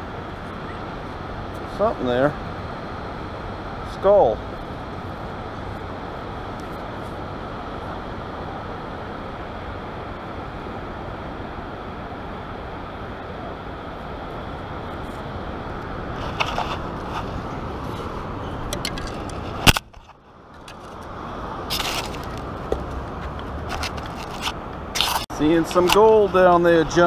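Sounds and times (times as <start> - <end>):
wind: 0.0 - 27.0
scraping in sand: 16.2 - 18.2.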